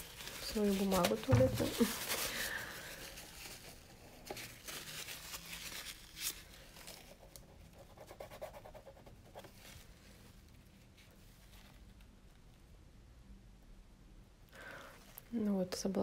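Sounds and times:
rustling and scraping of materials: 0.0 - 7.7.

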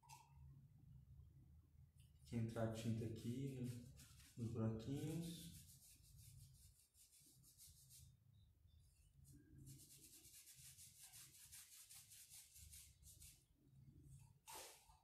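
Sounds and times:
paintbrush scrubbing wood: 3.2 - 8.1, 9.6 - 13.4.

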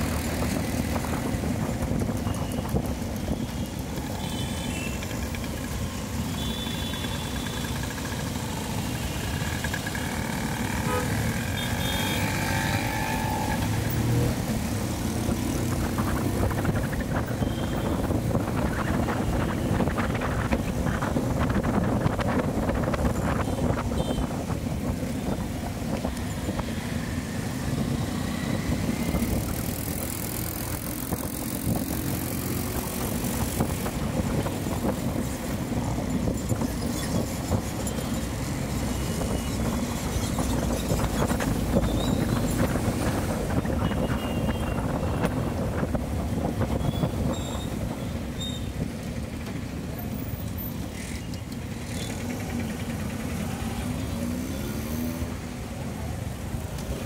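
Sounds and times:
road traffic noise: 0.0 - 57.0.

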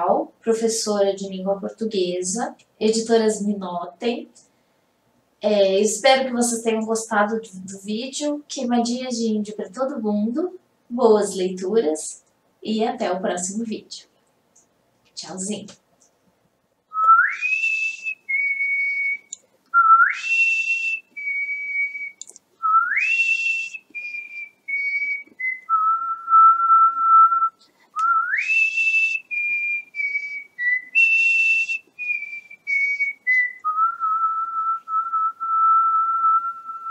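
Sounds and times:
whistled melody: 17.0 - 36.9.

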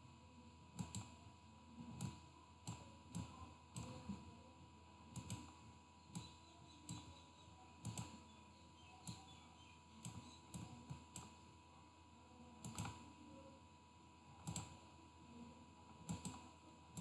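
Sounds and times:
computer mouse clicks: 0.8 - 1.2, 1.9 - 4.2, 5.1 - 5.5, 6.1 - 7.2, 7.8 - 8.2, 9.0 - 9.4, 10.0 - 11.3, 12.6 - 13.1, 14.4 - 14.8, 16.0 - 16.4.

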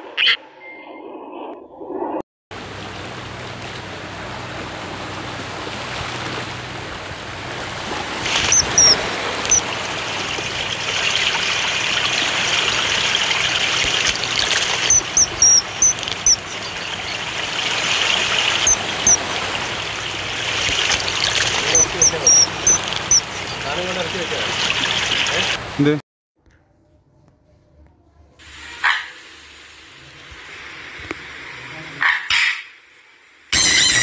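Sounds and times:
rushing stream water: 2.6 - 26.0
bird chirps: 8.4 - 9.7, 13.8 - 20.1, 20.7 - 25.1.

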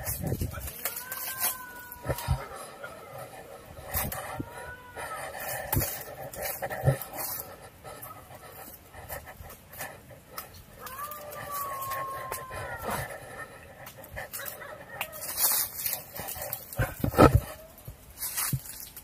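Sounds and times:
person breathing hard: 0.0 - 14.9.

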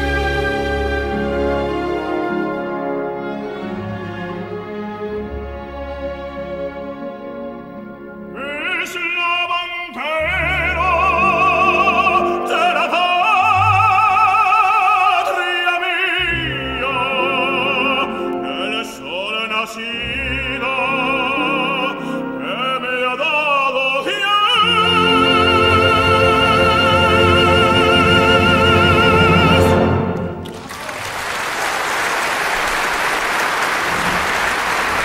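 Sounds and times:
orchestra: 0.0 - 35.0
operatic tenor singing: 8.1 - 30.5.

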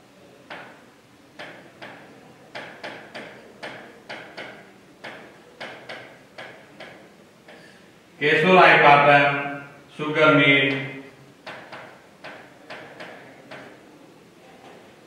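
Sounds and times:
marker writing on whiteboard: 1.4 - 7.7, 11.5 - 13.8.

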